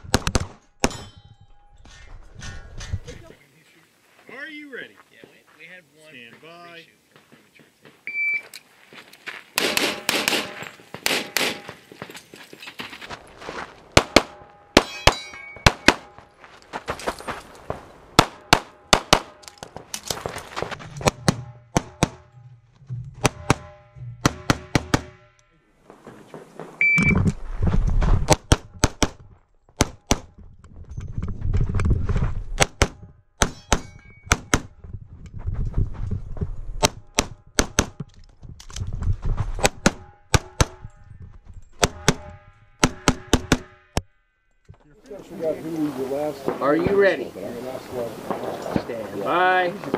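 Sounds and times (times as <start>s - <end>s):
pistol shots: 9.6s - 11.8s, 14.0s - 16.2s, 18.2s - 19.5s
ringing tone: 14.5s - 15.9s, 33.5s - 34.3s
low rumble: 20.7s - 24.3s.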